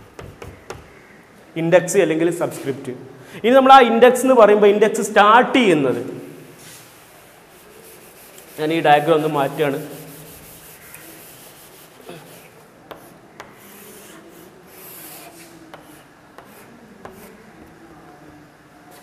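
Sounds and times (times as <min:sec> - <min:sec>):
faint rubbing and scraping: 0:06.6 - 0:17.5.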